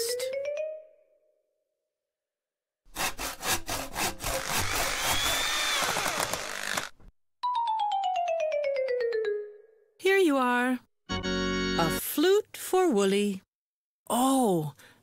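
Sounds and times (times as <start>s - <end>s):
sawing and scraping: 2.9s - 7.1s.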